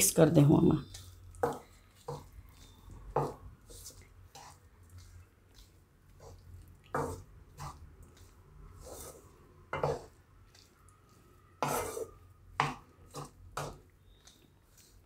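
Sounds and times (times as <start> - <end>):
spatula scraping a pan: 0.8 - 15.0.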